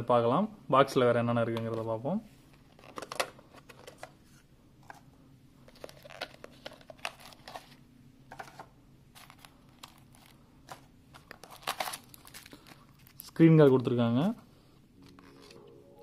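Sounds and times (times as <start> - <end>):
paper rustling and crinkling: 5.7 - 13.7.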